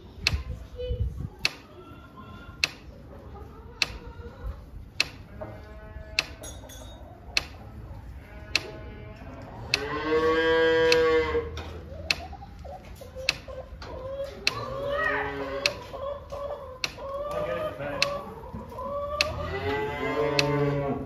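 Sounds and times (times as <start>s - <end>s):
sharp ticks: 2.6s - 2.9s, 5.0s - 5.2s, 6.1s - 6.4s, 7.3s - 7.6s, 9.7s - 9.9s, 10.9s - 11.1s, 12.0s - 12.3s, 13.3s - 13.5s, 16.8s - 17.1s, 18.0s - 18.2s, 19.2s - 19.4s, 20.3s - 20.6s
cow mooing: 7.6s - 11.5s, 19.4s - 21.0s.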